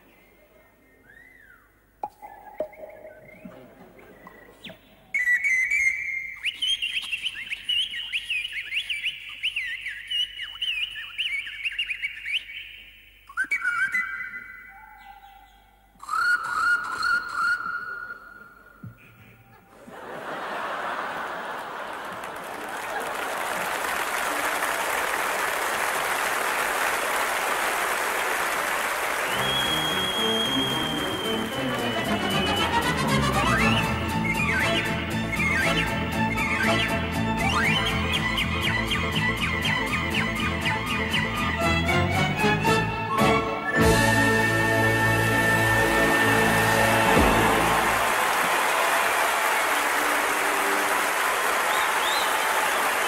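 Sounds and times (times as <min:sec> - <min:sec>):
audience applauding: 0:19.9 - 0:35.9, 0:44.4 - 0:53.0
pan flute playing: 0:29.3 - 0:48.1.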